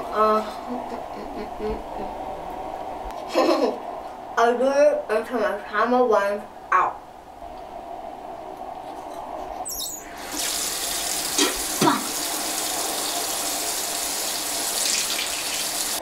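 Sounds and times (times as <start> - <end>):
faucet running into sink: 10.0 - 16.0.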